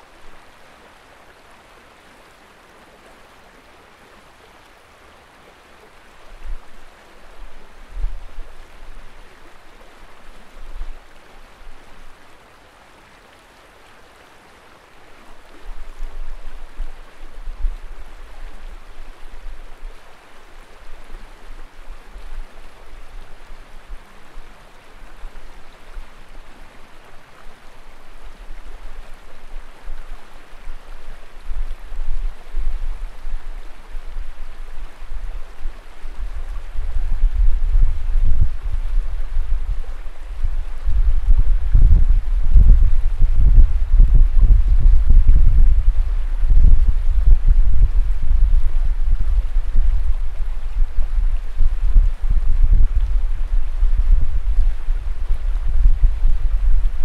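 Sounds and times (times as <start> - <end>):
flowing river water: 0.0 - 57.0
wind gusting on microphone: 6.2 - 12.2, 15.4 - 20.0, 28.3 - 57.0.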